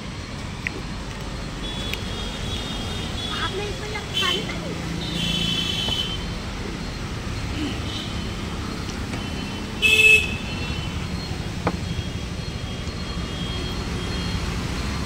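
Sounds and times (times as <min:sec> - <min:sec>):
road traffic rumble: 0:00.0 - 0:15.0
vehicle horn honking: 0:04.2 - 0:06.3, 0:09.2 - 0:11.0.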